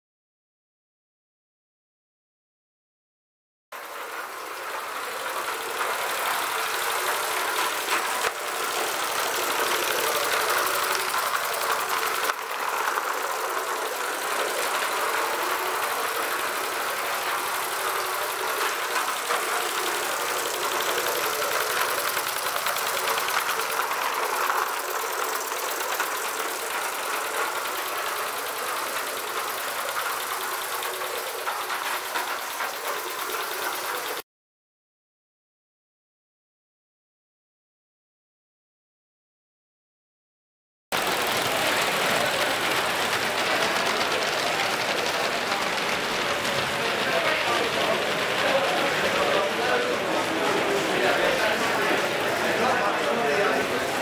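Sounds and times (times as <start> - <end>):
wheels running on rails: 3.8 - 34.2, 40.9 - 54.0.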